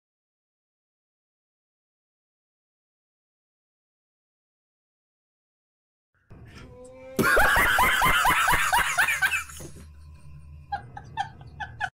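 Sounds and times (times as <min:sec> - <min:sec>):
man laughing hard: 0:07.2 - 0:09.8, 0:10.7 - 0:11.9.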